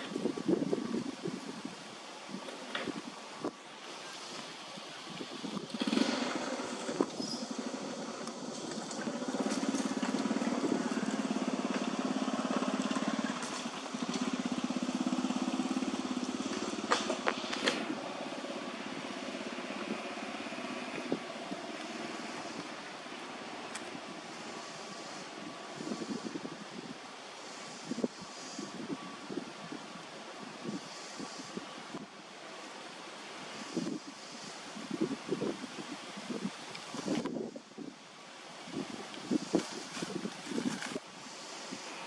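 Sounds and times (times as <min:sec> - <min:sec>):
small engine humming: 0:05.6 - 0:29.4.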